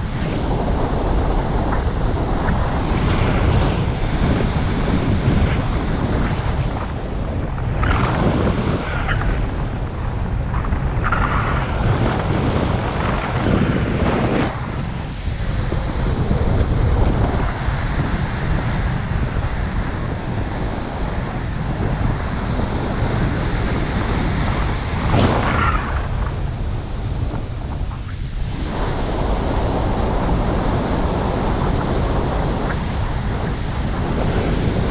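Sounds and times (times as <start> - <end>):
wind rushing over microphone: 0.0 - 34.9.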